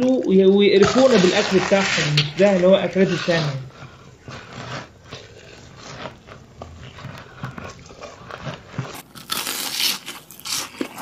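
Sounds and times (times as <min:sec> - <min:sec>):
man chewing food: 0:00.7 - 0:11.0.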